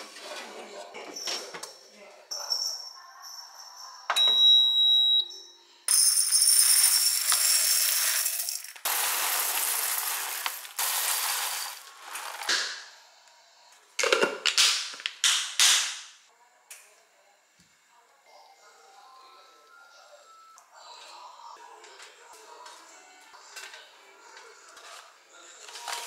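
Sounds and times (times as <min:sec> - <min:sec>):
coffee beans pouring into glass jar: 0:05.9 - 0:12.5.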